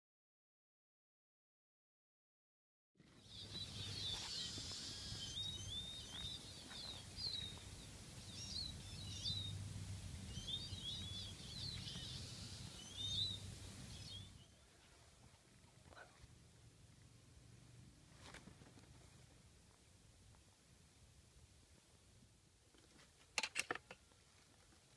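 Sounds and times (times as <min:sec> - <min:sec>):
small birds twittering: 0:03.0 - 0:14.7
low steady rumble: 0:06.5 - 0:14.4.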